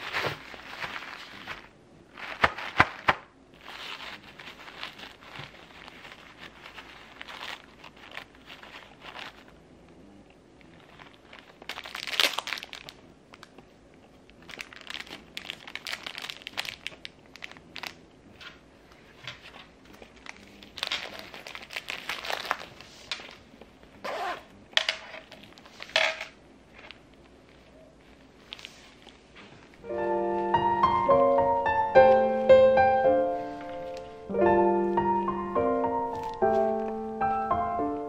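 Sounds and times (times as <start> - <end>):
fabric rustling: 0.0 - 9.5
tissue paper crinkling: 0.0 - 9.5, 10.8 - 13.0, 14.4 - 18.0, 19.0 - 23.4, 32.0 - 38.0.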